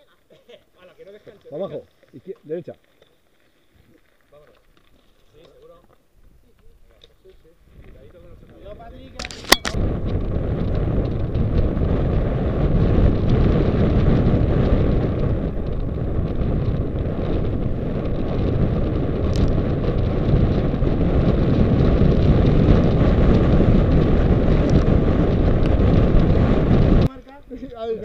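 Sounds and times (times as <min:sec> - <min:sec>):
bike tyres rumbling on gravel: 0:01.0 - 0:27.2
wind rushing over microphone: 0:07.6 - 0:28.0
sharp click: 0:09.2 - 0:09.8.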